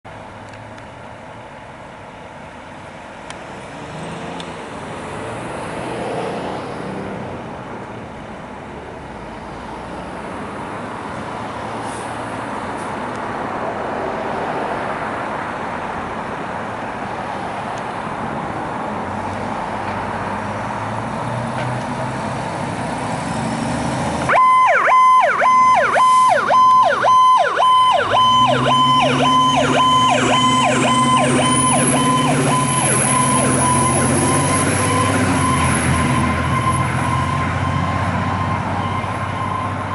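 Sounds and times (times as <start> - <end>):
fire engine rumbling: 15.3 - 39.9
fast yelping electronic siren: 24.3 - 37.8
deep steady siren tone: 24.3 - 39.9
siren rising in pitch: 24.3 - 39.9.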